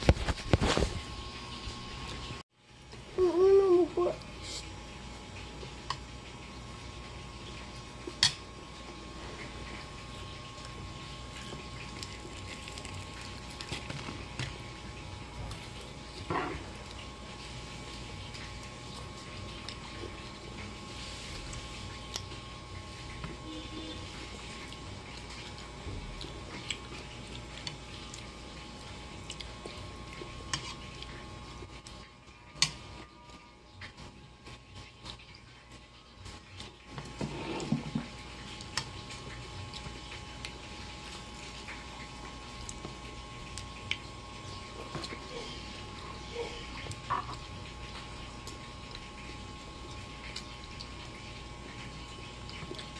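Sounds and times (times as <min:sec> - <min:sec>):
faint steady hum: 0:00.0 - 0:52.9
small eating clicks: 0:24.2 - 0:37.2, 0:38.1 - 0:52.9.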